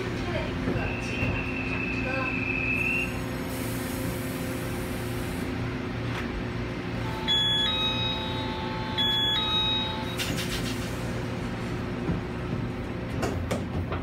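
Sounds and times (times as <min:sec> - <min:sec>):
train equipment hum: 0:00.0 - 0:14.0
held electronic tone: 0:07.0 - 0:10.4
electronic warning beeps: 0:07.0 - 0:10.5.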